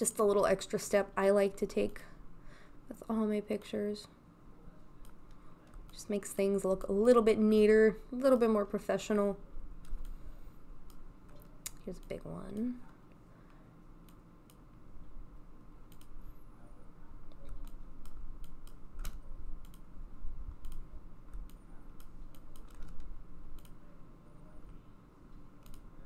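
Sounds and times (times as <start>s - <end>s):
low steady hum: 0.0s - 26.0s
mouse and keyboard clicks: 20.6s - 23.8s.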